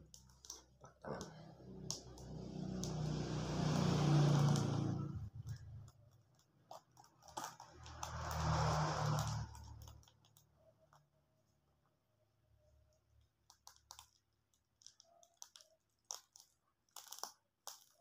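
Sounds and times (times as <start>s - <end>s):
small clicks: 0.0s - 11.1s, 12.8s - 18.0s
fruit rind tearing: 14.8s - 18.0s.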